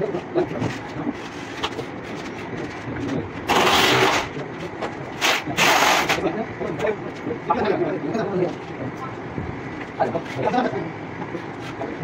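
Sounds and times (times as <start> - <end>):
clatter of work: 0.0 - 9.1.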